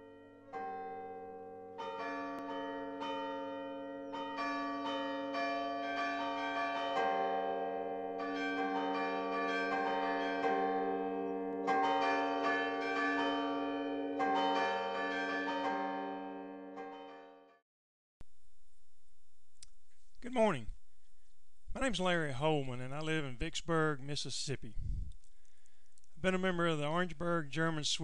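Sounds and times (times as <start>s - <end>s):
carillon bells playing a tune: 0.0s - 17.1s.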